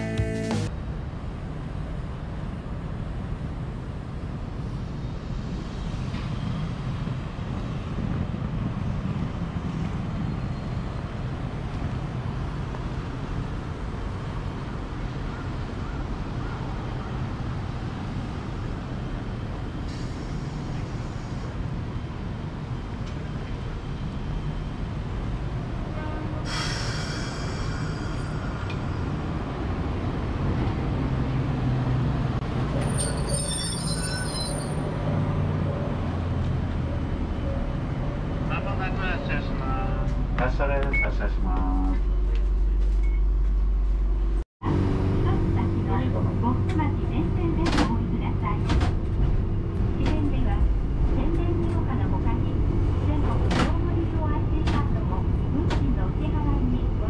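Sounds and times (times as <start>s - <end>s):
traffic rumble: 0.0s - 57.0s
tram humming: 0.0s - 57.0s
tram wheels squealing: 26.4s - 29.7s, 32.6s - 36.0s.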